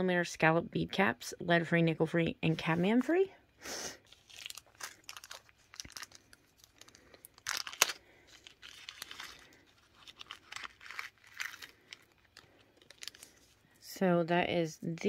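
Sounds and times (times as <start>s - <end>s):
plastic bag crinkling: 4.0s - 13.7s.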